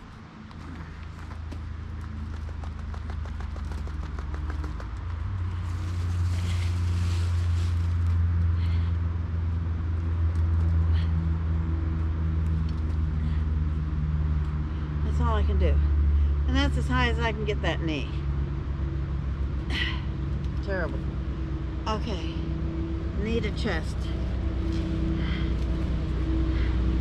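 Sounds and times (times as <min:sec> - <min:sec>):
low engine drone: 0:00.0 - 0:27.0.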